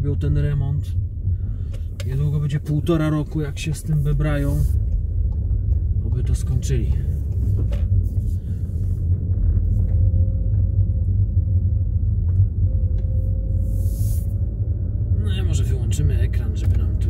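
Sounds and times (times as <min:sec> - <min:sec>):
car cabin road rumble: 0:00.0 - 0:17.0
faint hum: 0:00.0 - 0:17.0
brief hiss: 0:13.6 - 0:14.4.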